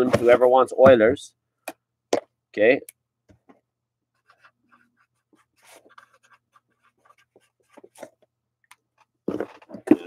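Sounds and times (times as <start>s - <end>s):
pen scratching on paper: 4.2s - 7.8s.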